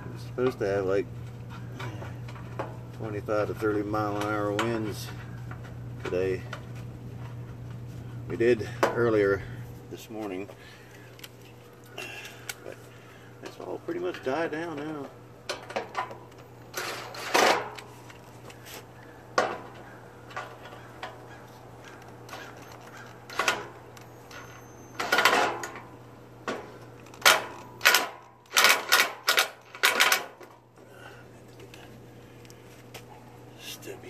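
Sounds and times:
plastic and metal parts clacking: 26.5 - 30.6.

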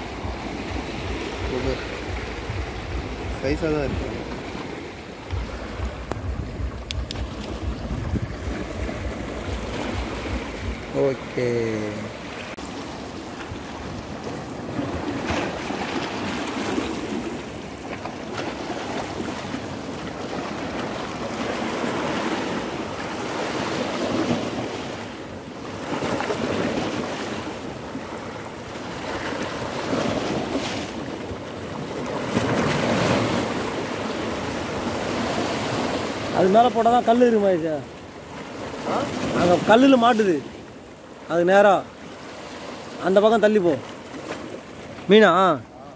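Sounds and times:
wind buffeting microphone: 0.0 - 11.4
sea waves washing against rocks: 0.0 - 45.7.

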